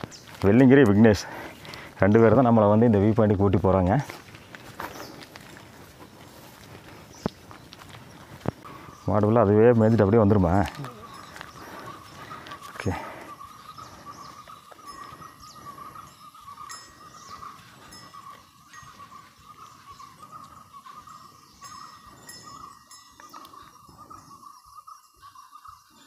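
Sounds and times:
metallic bell clinks: 14.8 - 19.2, 21.0 - 24.4.

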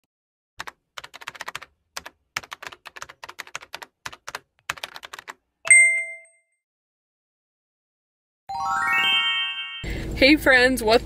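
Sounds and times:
keystroke clicks: 0.6 - 5.4
bright bell ding: 5.7 - 6.4.

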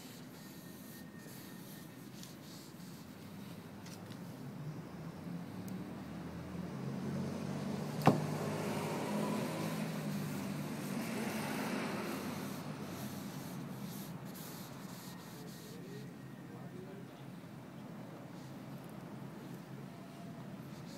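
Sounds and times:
vehicle passing by: 0.5 - 16.2.

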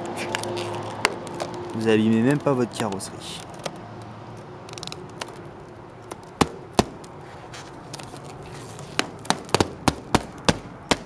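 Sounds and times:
rubber coating peeling with snaps: 0.0 - 11.0.

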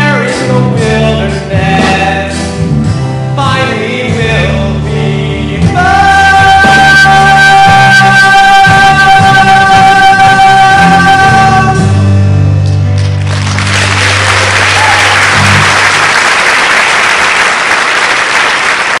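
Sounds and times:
audience applauding: 13.0 - 19.0.

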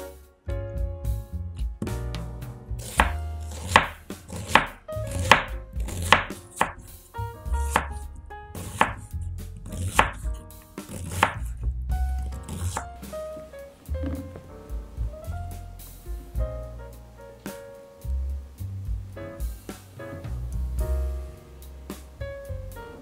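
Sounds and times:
soft background music: 0.0 - 23.0
knife slicing onion on board: 2.8 - 7.0, 7.6 - 11.6, 12.2 - 12.9.

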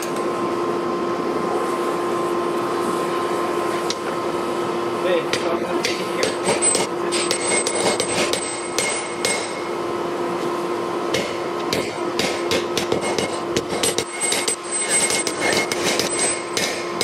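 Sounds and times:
steady hum: 0.0 - 17.0
hammer striking steel on anvil: 5.3 - 9.7, 11.1 - 17.0.

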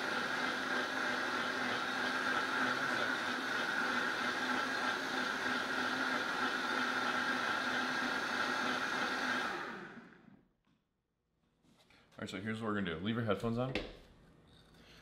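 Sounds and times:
blender whirring: 0.0 - 10.4.

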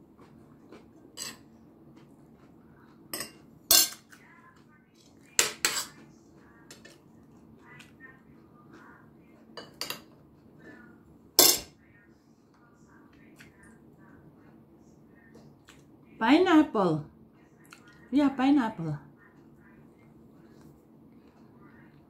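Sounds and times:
cutlery clinking on plate: 1.2 - 1.5, 3.2 - 4.1, 5.4 - 6.0, 9.6 - 10.2, 11.4 - 11.7.

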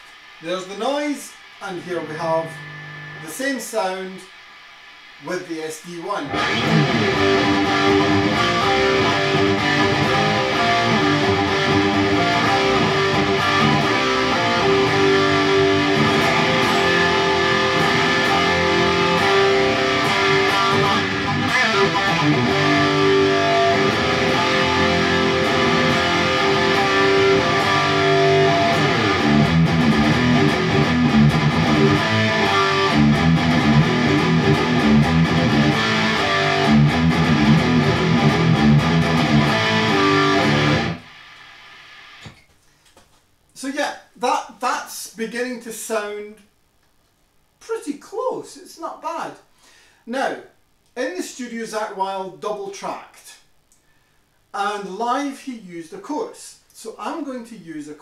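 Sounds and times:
distorted electric guitar riff: 0.0 - 42.4.

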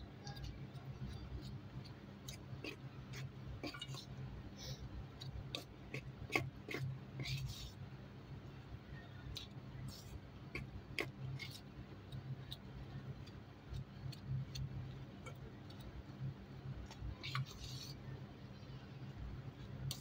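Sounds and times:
utensil scraping steel bowl: 2.3 - 4.2.

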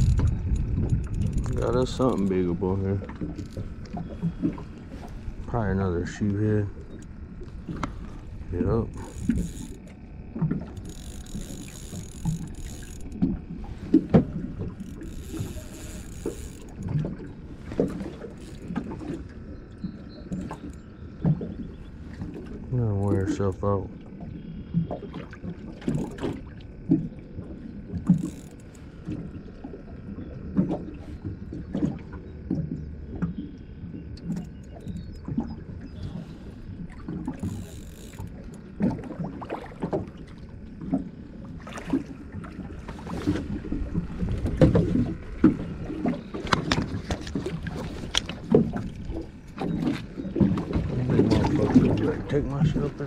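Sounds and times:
waves lapping against metal boat: 0.0 - 53.0.

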